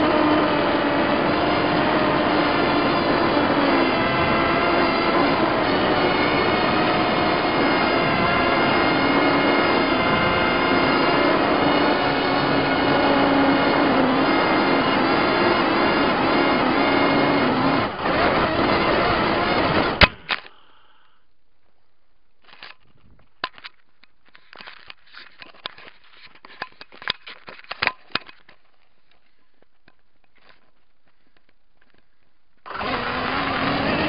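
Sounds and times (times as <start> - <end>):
quadcopter motors buzzing: 0.0 - 20.3, 32.7 - 34.0
scattered clicks and knocks: 22.4 - 32.1.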